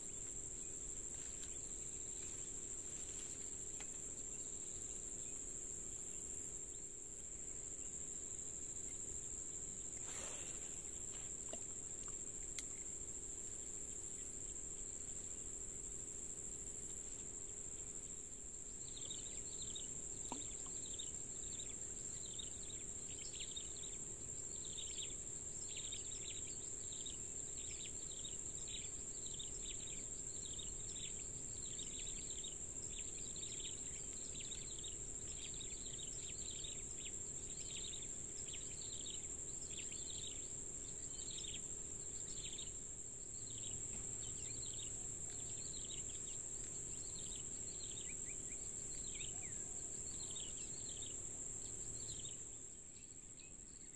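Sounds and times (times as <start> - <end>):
insects droning: 0.0 - 53.9.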